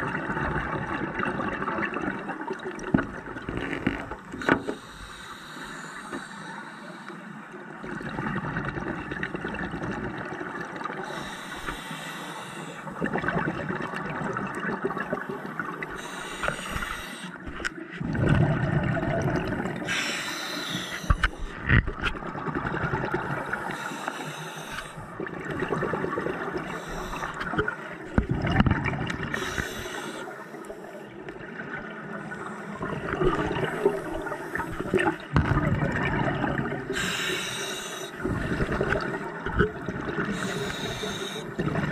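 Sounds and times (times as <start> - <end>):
exhaled bubbles gurgling: 0.0 - 5.8, 7.5 - 41.9
regulator hissing inhale: 4.4 - 7.6, 11.0 - 13.0, 15.4 - 17.4, 19.8 - 21.7, 23.5 - 25.1, 26.7 - 27.4, 29.3 - 31.1, 36.9 - 38.6, 40.3 - 41.6.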